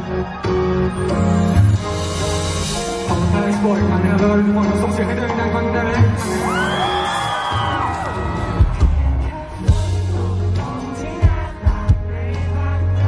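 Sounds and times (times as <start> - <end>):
audience whooping and screaming: 0.0 - 2.9, 6.2 - 9.3
live pop-rock band playing: 0.0 - 13.0.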